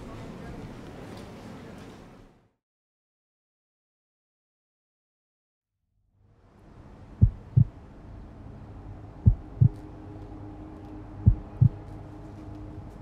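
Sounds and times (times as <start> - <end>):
low steady hum: 6.2 - 13.0
heartbeat thuds: 7.2 - 7.7, 9.2 - 9.8, 11.2 - 11.8.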